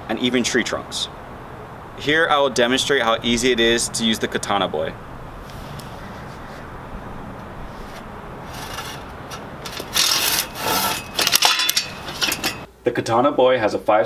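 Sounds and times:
saw rasping through a branch: 0:07.7 - 0:11.2.

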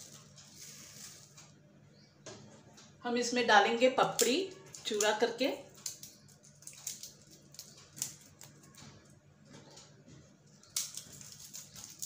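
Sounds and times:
crisp wafers crackling and crunching: 0:10.6 - 0:12.0.

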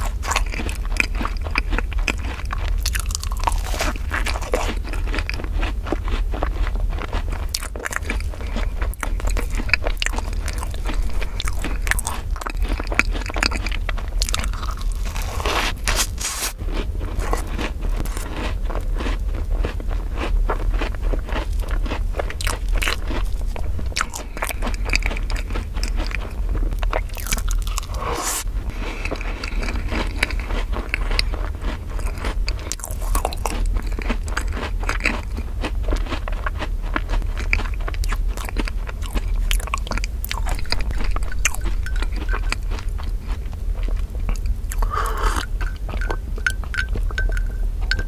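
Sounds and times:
chewing soft crunches: 0:00.0 - 0:48.0
steady low hum: 0:00.0 - 0:48.0
mouth clicks: 0:44.3 - 0:48.0.

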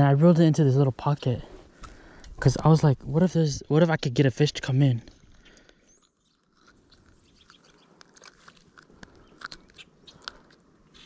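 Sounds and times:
faint handling clicks and crackles: 0:04.4 - 0:11.0.

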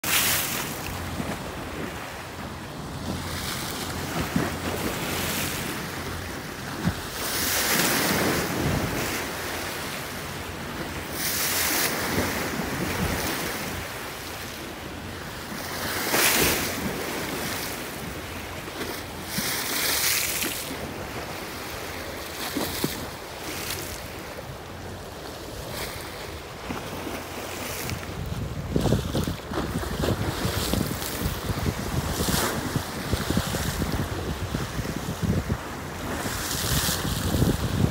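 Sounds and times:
waves crashing against concrete wall: 0:00.0 - 0:37.9
wind buffeting microphone: 0:27.6 - 0:37.9.

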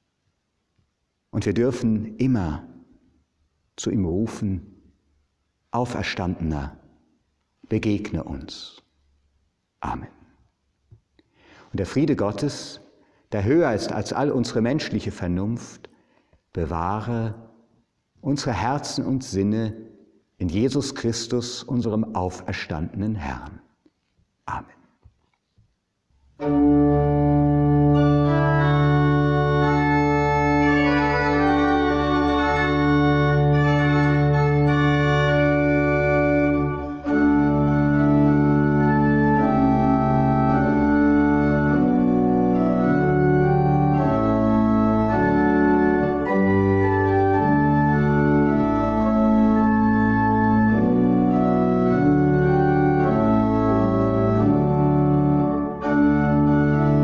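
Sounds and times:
pipe organ chords: 0:11.7 - 0:15.7, 0:26.4 - 0:57.0.

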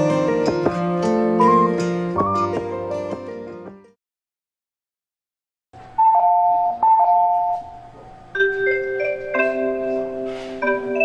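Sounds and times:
bell-like melody over loudspeakers: 0:08.2 - 0:11.0.

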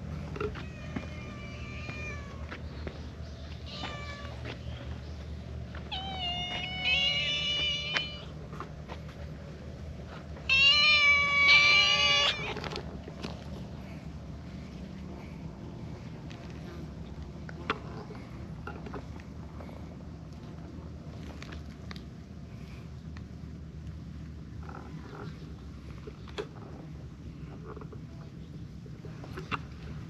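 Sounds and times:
cats meowing: 0:00.3 - 0:02.6, 0:03.4 - 0:04.7, 0:05.8 - 0:08.4, 0:10.4 - 0:12.8.

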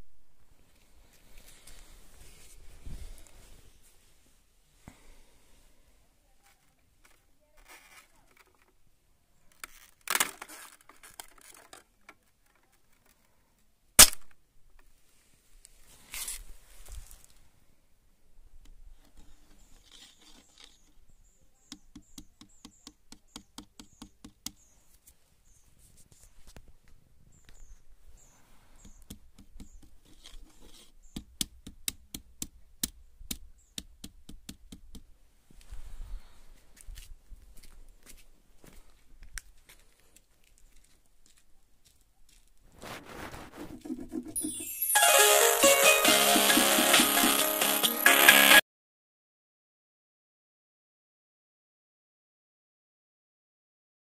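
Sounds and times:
sharp loud ice crack: 0:14.0 - 0:14.3.

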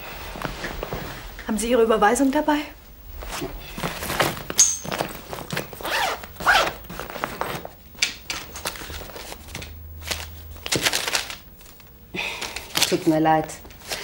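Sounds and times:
rustling and scraping of rummaging: 0:03.2 - 0:14.0
zip sound: 0:05.8 - 0:06.8.

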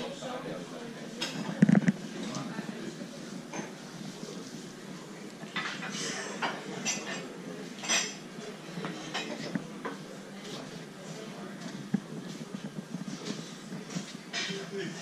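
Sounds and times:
room noise: 0:00.0 - 0:15.0
plates and cutlery clinking: 0:03.5 - 0:03.9, 0:05.5 - 0:10.1, 0:11.7 - 0:15.0.

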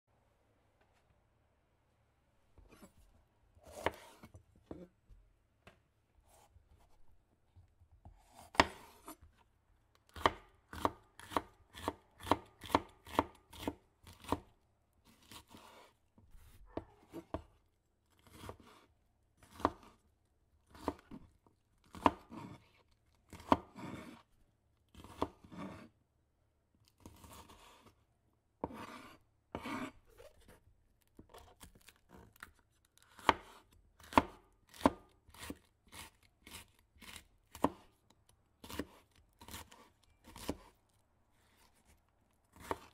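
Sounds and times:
knife chopping on wooden board: 0:03.6 - 0:04.9, 0:08.0 - 0:09.2, 0:10.1 - 0:14.5, 0:15.1 - 0:17.6, 0:18.2 - 0:18.8, 0:19.4 - 0:20.0, 0:20.7 - 0:21.2, 0:21.8 - 0:22.7, 0:23.3 - 0:24.2, 0:24.9 - 0:25.9, 0:28.6 - 0:30.3, 0:33.0 - 0:37.9, 0:38.6 - 0:40.7, 0:42.5 - 0:42.9
knife scraping cuts: 0:03.6 - 0:04.9, 0:08.0 - 0:09.4, 0:15.1 - 0:17.5, 0:21.9 - 0:24.3, 0:25.0 - 0:25.9, 0:28.6 - 0:30.6, 0:31.2 - 0:38.0, 0:38.6 - 0:40.8, 0:42.5 - 0:42.9.

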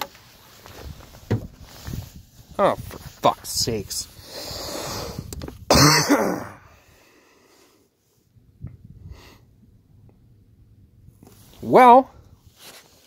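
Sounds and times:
man exhaling: 0:04.2 - 0:05.3
man clearing throat: 0:05.7 - 0:06.7.

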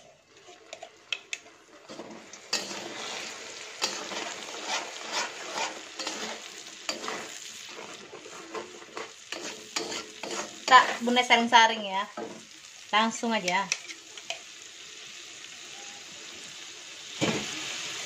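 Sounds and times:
paste sizzling in oil: 0:00.0 - 0:18.0
metal spatula scraping a wok: 0:00.1 - 0:11.1.

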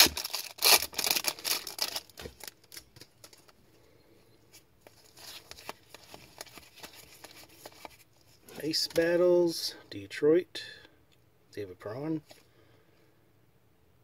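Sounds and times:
pack wrapper crinkling: 0:00.0 - 0:03.6, 0:04.9 - 0:08.0.

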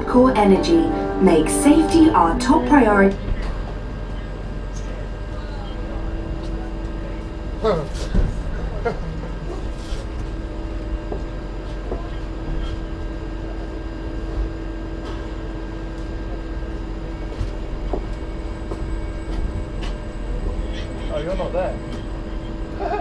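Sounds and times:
constant hum: 0:00.0 - 0:13.5, 0:15.0 - 0:23.0.

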